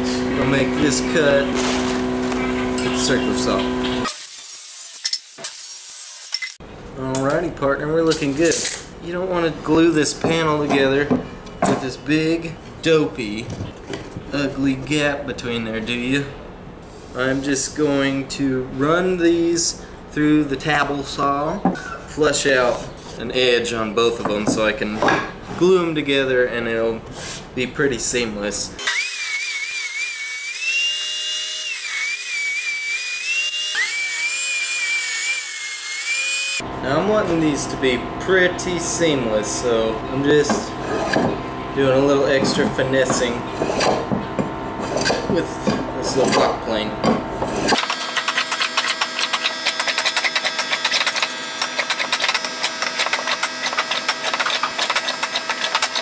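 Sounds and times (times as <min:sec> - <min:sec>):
table saw motor whine: 0:00.0 - 0:06.6, 0:28.8 - 0:56.0
saw blade cutting wood: 0:00.5 - 0:06.6, 0:28.8 - 0:56.0
block plane shaving wood: 0:39.5 - 0:56.0.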